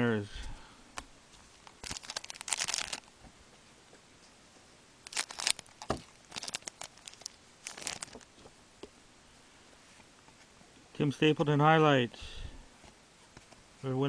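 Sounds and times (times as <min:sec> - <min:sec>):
wrapper tearing and crinkling: 0:01.6 - 0:03.1, 0:05.0 - 0:08.3.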